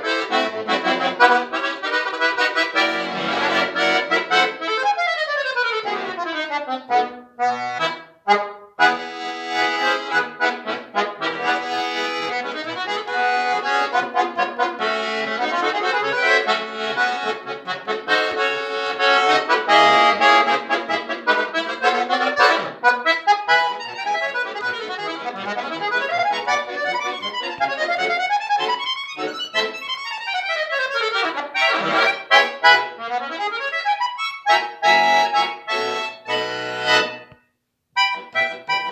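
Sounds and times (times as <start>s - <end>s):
button accordion playing: 0.0s - 37.4s, 38.0s - 38.9s.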